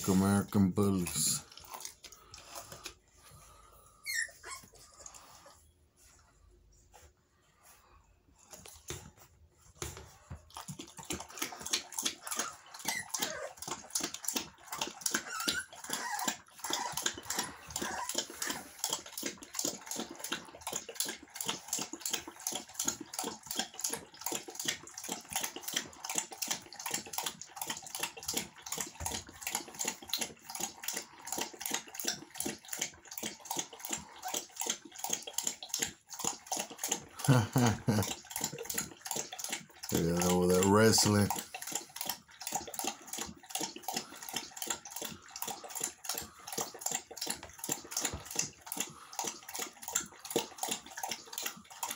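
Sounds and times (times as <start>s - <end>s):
puppies lapping water from bowl: 0.0s - 51.9s
puppy squeaks: 4.0s - 4.8s, 12.3s - 13.6s, 15.1s - 18.2s.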